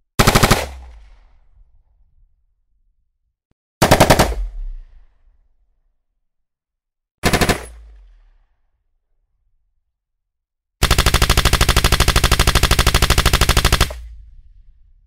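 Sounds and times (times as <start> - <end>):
automatic rifle fire: 0.2 - 0.9, 3.8 - 4.6, 7.2 - 7.8, 10.8 - 14.1.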